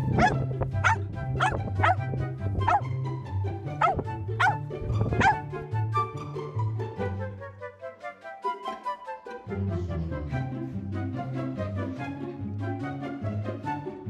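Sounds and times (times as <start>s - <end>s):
background music with bass line: 0.0s - 8.2s, 9.2s - 14.0s
dog barking: 0.1s - 2.9s, 3.8s - 5.5s.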